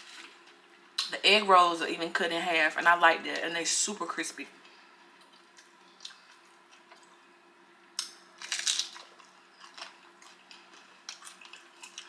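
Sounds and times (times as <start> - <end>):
crunching crispy food: 7.9 - 12.0.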